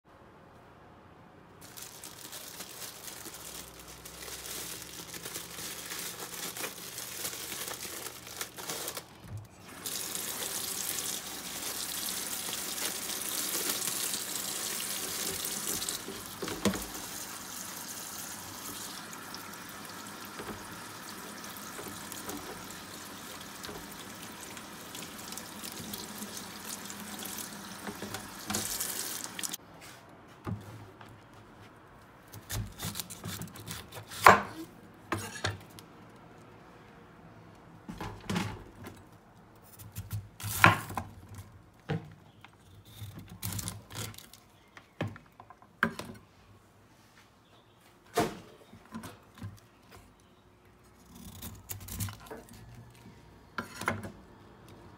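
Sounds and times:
tap water running into sink: 9.8s - 29.6s.

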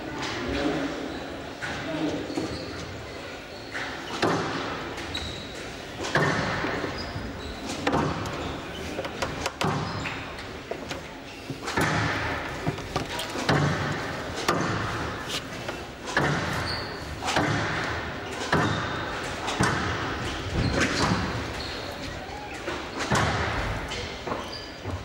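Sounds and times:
squash ball hitting rackets and walls: 3.7s - 8.6s, 9.2s - 10.6s, 11.6s - 21.8s, 22.7s - 25.0s.

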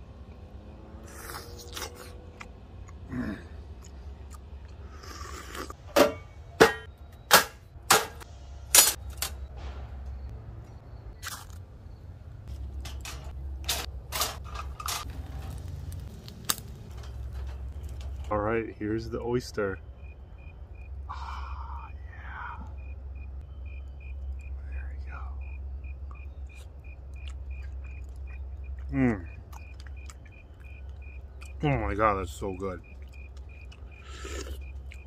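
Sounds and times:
metal clanks: 5.8s - 10.2s, 12.5s - 15.6s, 16.8s - 18.4s.

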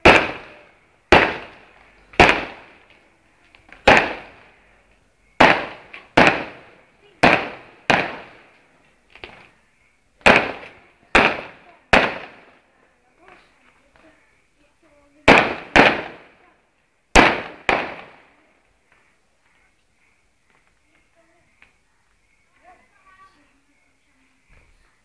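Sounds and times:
fireworks bangs: 0.0s - 2.9s, 3.8s - 4.6s, 5.4s - 8.5s, 10.2s - 12.6s, 15.2s - 16.4s, 17.1s - 18.4s.

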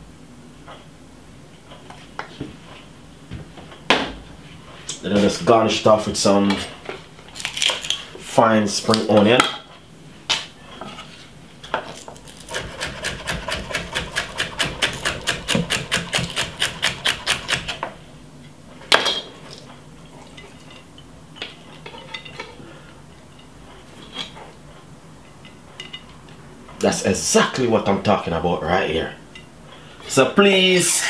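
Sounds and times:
knife chopping on wooden board: 12.3s - 17.7s.

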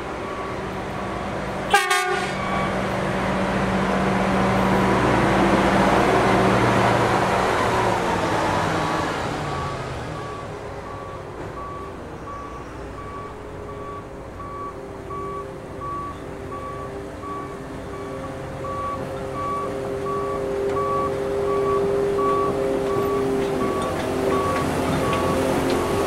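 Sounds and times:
diesel engine humming: 0.0s - 26.0s
warning alarm beeping: 9.5s - 26.0s.

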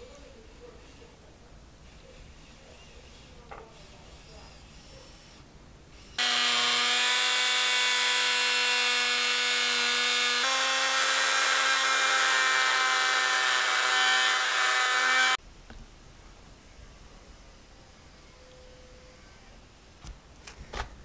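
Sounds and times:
power tool whining: 6.1s - 15.4s.

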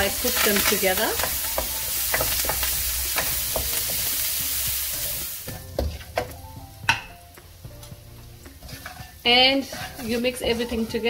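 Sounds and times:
food sizzling in hot oil: 0.0s - 11.0s
spatula knocking on pan: 1.2s - 4.3s, 5.5s - 9.1s.

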